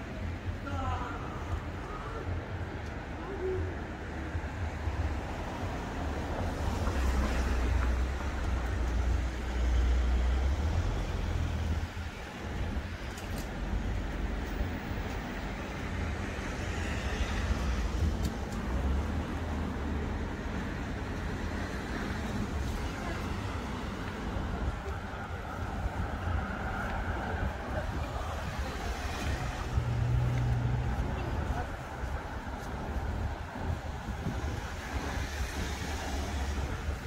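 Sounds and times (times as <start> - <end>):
cars passing: 0.0 - 37.0.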